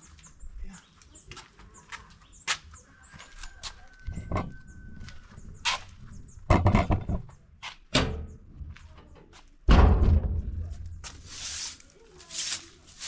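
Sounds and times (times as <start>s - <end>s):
broom sweeping brick paving: 10.8s - 13.0s.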